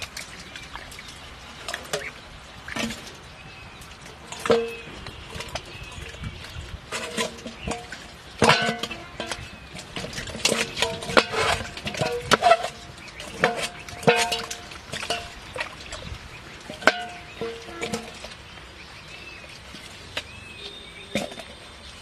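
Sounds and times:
water splashing: 0.0 - 22.0
metal bowls knocking and scraping: 4.3 - 18.4.

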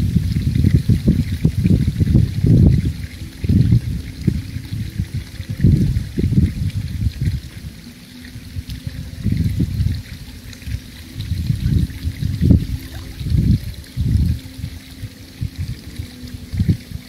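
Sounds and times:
pool water sloshing: 6.9 - 17.0.

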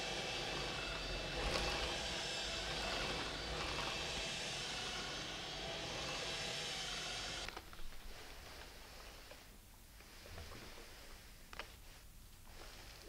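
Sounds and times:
vacuum cleaner motor whine: 0.0 - 8.4
vacuum suction rushing: 0.4 - 8.2.

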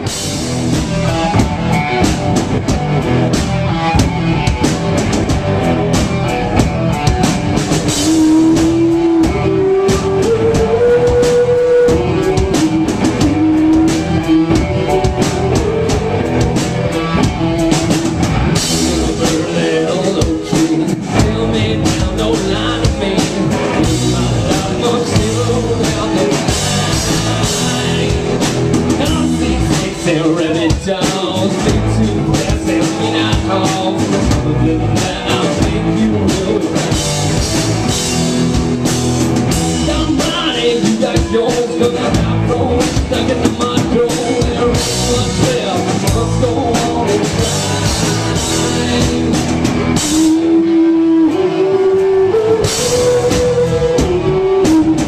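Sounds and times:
rock band playing live: 0.0 - 55.0.

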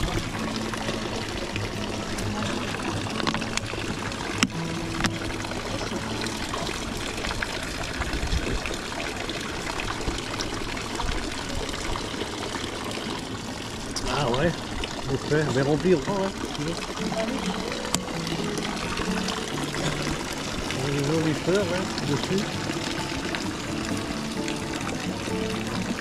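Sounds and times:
water pouring from fountain spout: 0.0 - 26.0.

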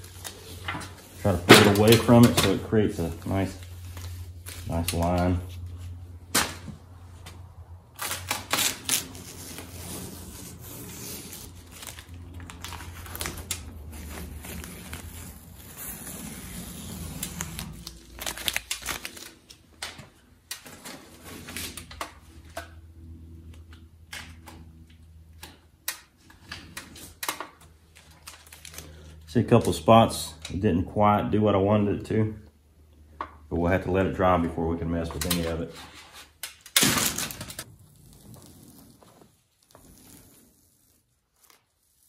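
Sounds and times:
tape crinkling in hand: 0.0 - 6.0, 7.9 - 22.4, 25.4 - 30.5, 35.2 - 42.0
masking tape ripping: 0.0 - 6.8, 7.9 - 22.5, 25.3 - 29.8, 35.2 - 42.0.

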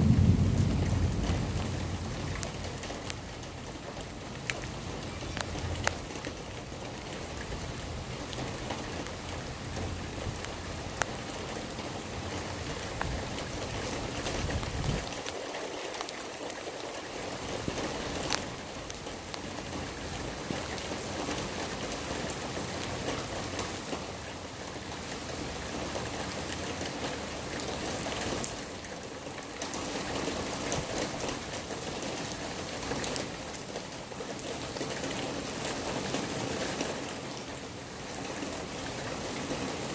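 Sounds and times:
sharp raindrop hits: 0.0 - 6.4
steady rain falling: 0.0 - 39.9.

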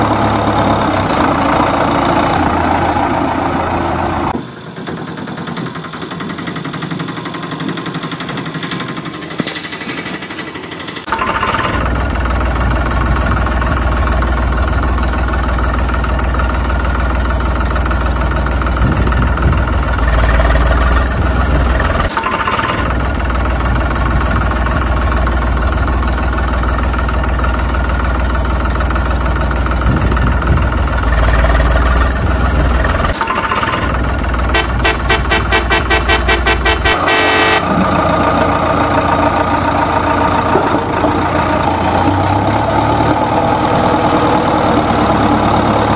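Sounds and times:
heavy vehicle engine idling: 0.0 - 45.9
fast engine pulses: 29.3 - 45.9.

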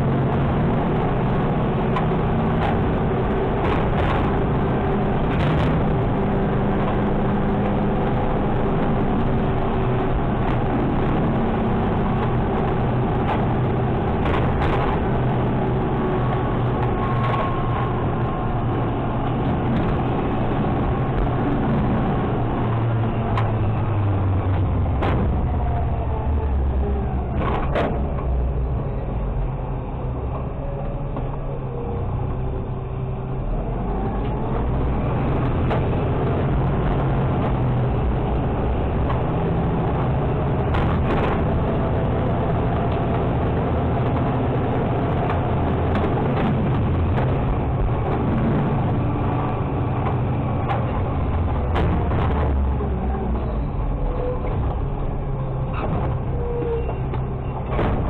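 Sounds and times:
garbage truck engine and hydraulics: 0.0 - 58.0
trash knocking and clattering: 57.6 - 58.0.

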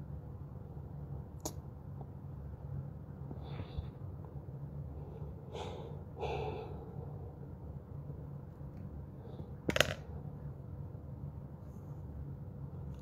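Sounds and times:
low room hum: 0.0 - 13.0
woman breathing heavily: 4.9 - 7.3.

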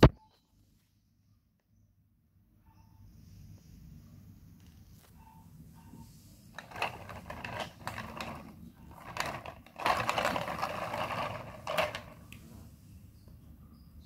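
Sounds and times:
toy train wheels rattling on tile: 6.6 - 12.2.

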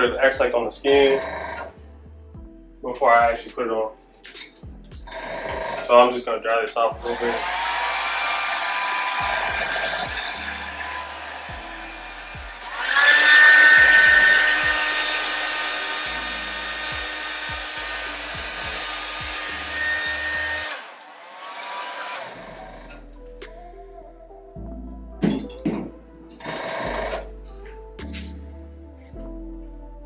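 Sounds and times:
blow dryer running: 7.0 - 22.9.

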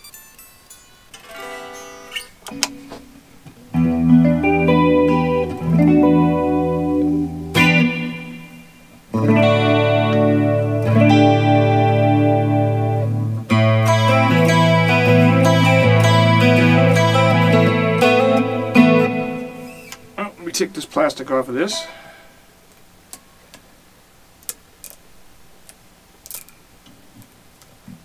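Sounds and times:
electric guitar plucks and chords: 0.0 - 20.3.

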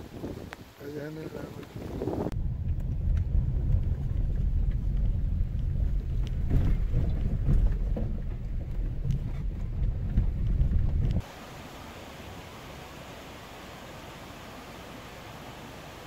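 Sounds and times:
wind buffeting microphone: 0.0 - 11.3.

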